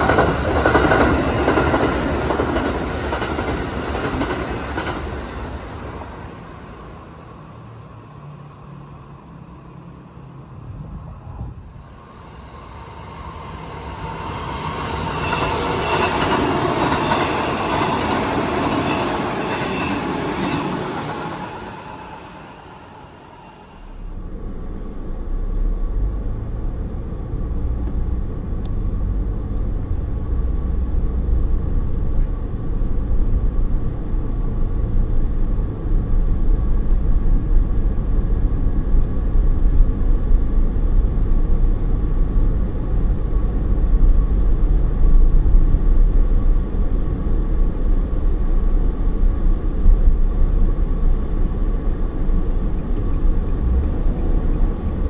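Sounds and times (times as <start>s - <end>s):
car road and engine rumble: 23.5s - 55.0s.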